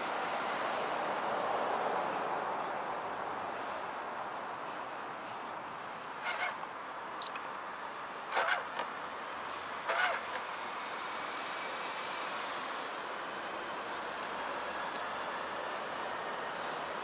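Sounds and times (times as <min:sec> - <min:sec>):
short chirps: 0:07.2 - 0:07.5.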